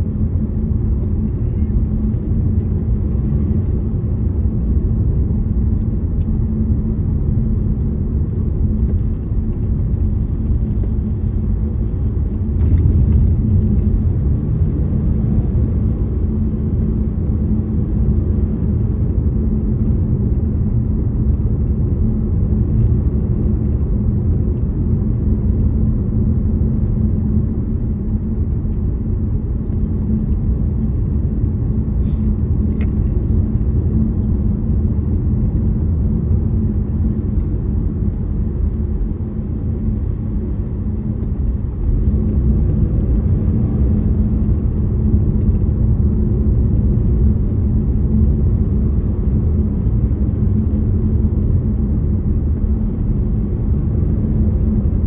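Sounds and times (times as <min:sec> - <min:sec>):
car engine and tyre rumble: 0:00.0 - 0:55.0.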